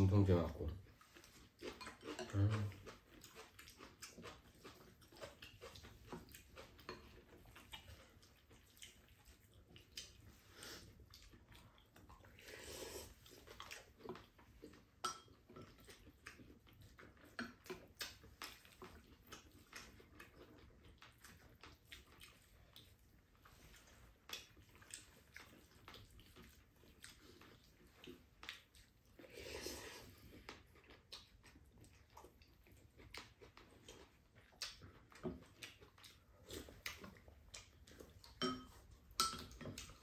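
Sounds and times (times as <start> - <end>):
chewing: 0.1 - 40.0
chopsticks clicking on ceramic bowls: 38.4 - 39.8.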